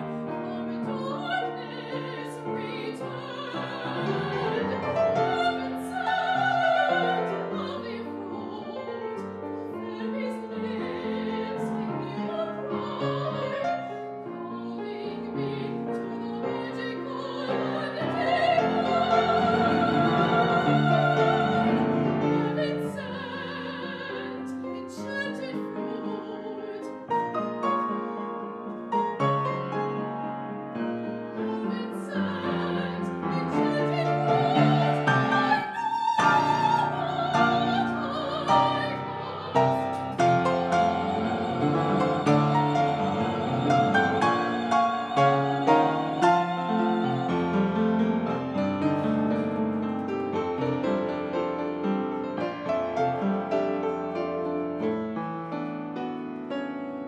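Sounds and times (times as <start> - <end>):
piano: 0.0 - 57.0
woman singing operatically: 0.3 - 27.1, 31.4 - 47.7.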